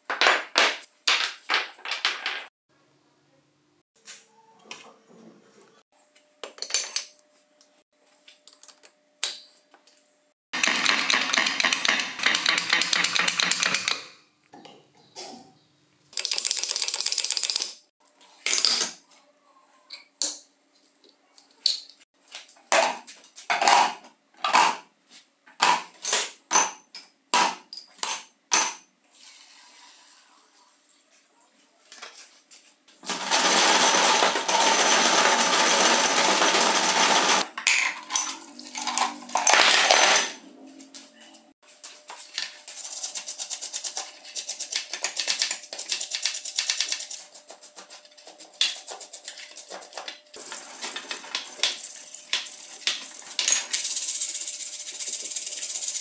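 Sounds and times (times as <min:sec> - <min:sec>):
metal parts dropped into plastic jar: 0:33.0 - 0:40.4.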